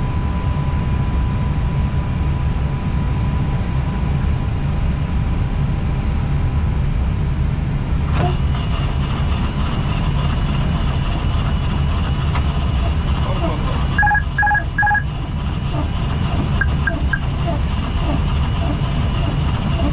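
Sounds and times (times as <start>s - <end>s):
cockpit airflow and engine rumble: 0.0s - 19.9s
windshield wipers whining: 12.1s - 19.9s.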